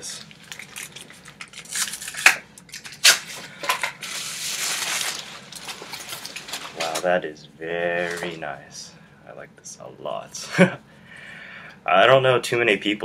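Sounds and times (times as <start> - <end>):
plastic wrapping crinkling: 0.0 - 7.2, 8.0 - 8.4.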